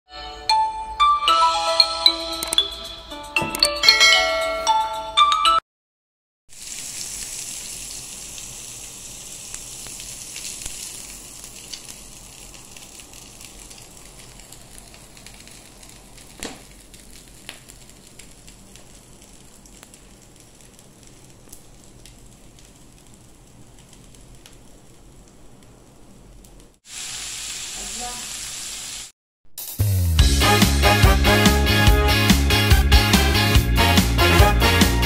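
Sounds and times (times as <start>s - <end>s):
kebabs sizzling on a grill: 6.5s - 29.1s.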